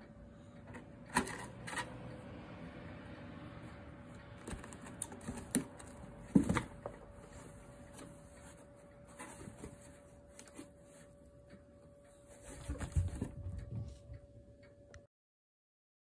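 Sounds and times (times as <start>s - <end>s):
kittens scrambling in cardboard box: 12.3s - 14.0s.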